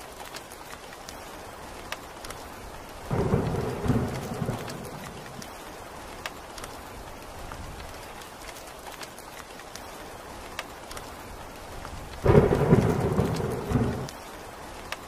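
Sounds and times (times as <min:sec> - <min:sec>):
steady rain: 0:00.0 - 0:15.0
thunder clap rumbling: 0:03.1 - 0:05.6, 0:12.2 - 0:14.2.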